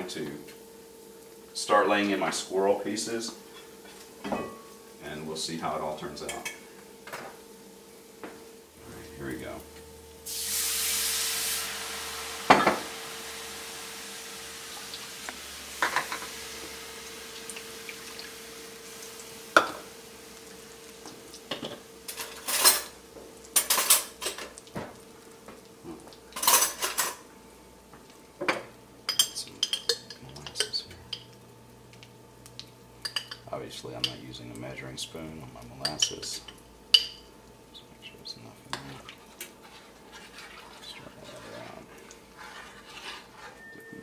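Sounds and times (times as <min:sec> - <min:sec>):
liquid hissing in hot skillet: 0:10.2 - 0:22.1.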